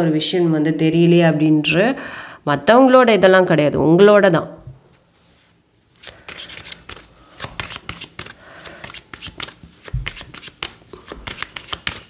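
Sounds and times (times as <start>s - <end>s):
cards being shuffled: 5.9s - 12.0s.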